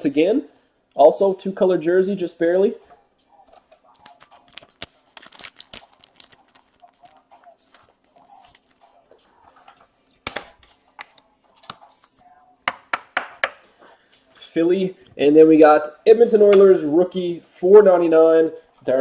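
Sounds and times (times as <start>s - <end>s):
plastic card sleeve crinkling: 3.5s - 12.2s.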